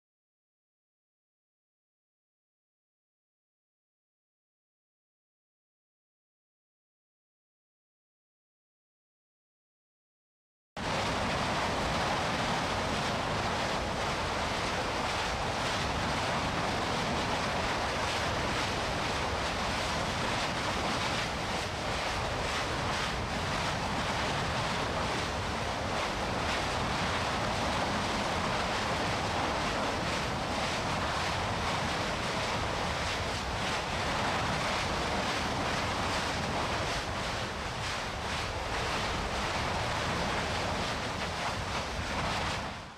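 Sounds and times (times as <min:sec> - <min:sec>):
lava fountaining roar: 0:10.8 - 0:42.9.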